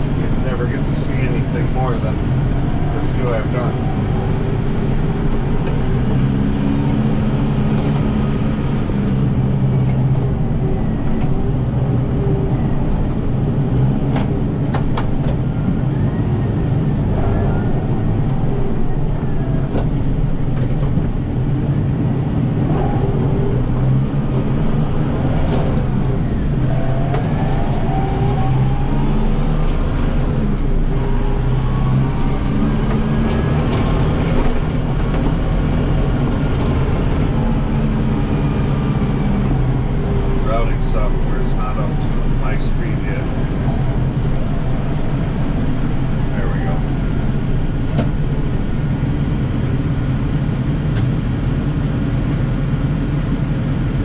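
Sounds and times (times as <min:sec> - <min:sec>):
rising and falling whines: 0:00.0 - 0:50.3
tractor diesel engine running: 0:00.0 - 0:54.0.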